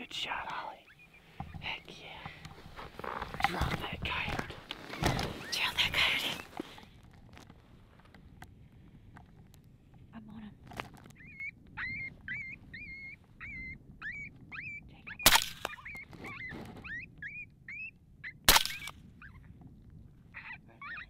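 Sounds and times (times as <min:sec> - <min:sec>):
suppressed rifle shots: 0:15.2 - 0:15.7, 0:18.5 - 0:18.9.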